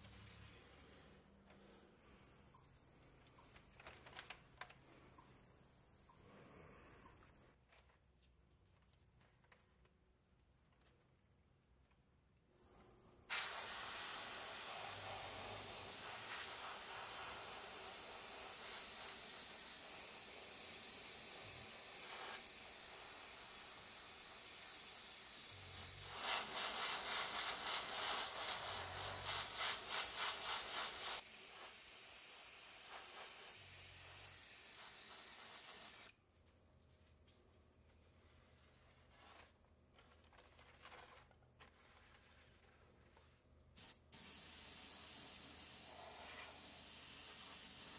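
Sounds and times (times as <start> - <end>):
airbrush spraying hiss: 13.3 - 36.2, 43.8 - 47.9.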